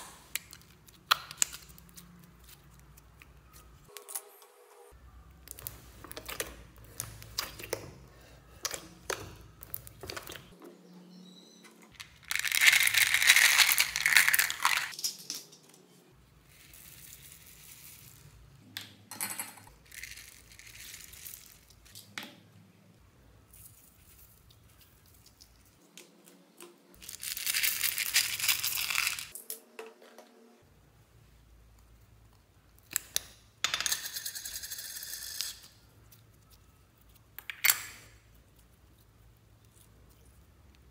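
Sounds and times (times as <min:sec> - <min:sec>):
beads pouring rattling: 0:12.0 - 0:15.0, 0:19.8 - 0:21.7, 0:27.0 - 0:29.4
sprinkles pouring rustle: 0:12.3 - 0:15.0, 0:27.0 - 0:29.3.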